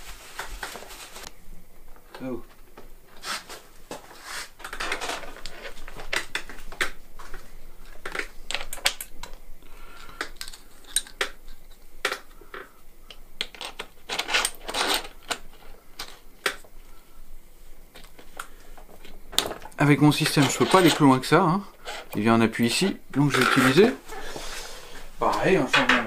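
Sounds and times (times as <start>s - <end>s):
scraping rub: 3.1s - 5.8s
small metal parts clinking: 10.2s - 11.7s, 13.4s - 16.2s, 20.2s - 21.2s.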